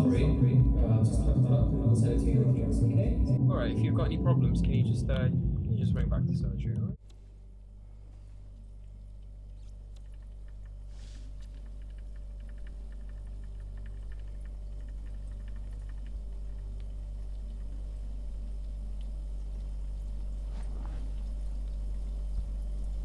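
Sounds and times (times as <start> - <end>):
low hum: 0.0 - 23.0
faint rapid ticking: 8.8 - 20.4.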